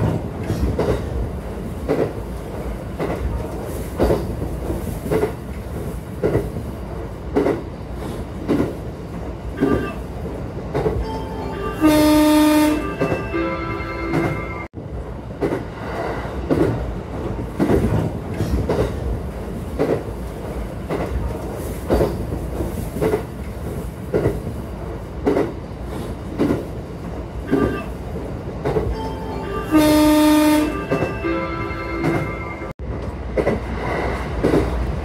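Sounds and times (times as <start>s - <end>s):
train wheels clacking over rail joints: 0.0s - 6.7s, 7.3s - 8.8s, 15.4s - 24.5s, 25.2s - 26.7s, 33.0s - 35.0s
low train rumble: 0.0s - 35.0s
train horn: 9.6s - 10.0s, 11.5s - 14.7s, 27.5s - 28.0s, 29.4s - 32.7s.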